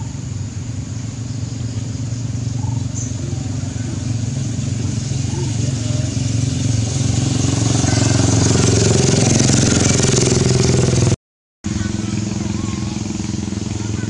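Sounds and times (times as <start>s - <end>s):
engine running steadily: 0.0s - 14.0s.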